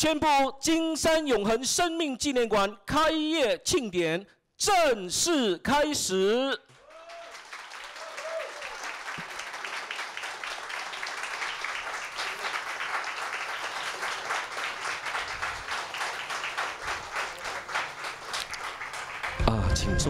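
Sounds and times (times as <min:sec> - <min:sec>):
audience applauding: 0:06.7 - 0:20.0.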